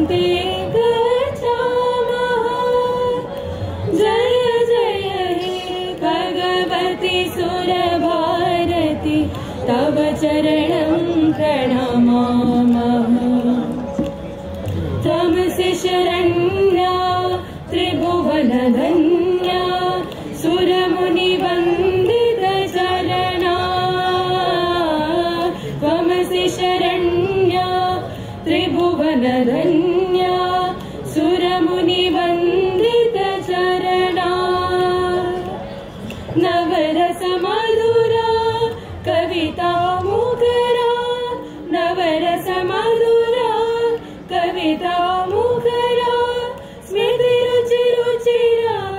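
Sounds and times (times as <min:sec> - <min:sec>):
students singing devotional song: 0:00.0 - 0:13.7, 0:15.0 - 0:35.6, 0:36.3 - 0:48.9.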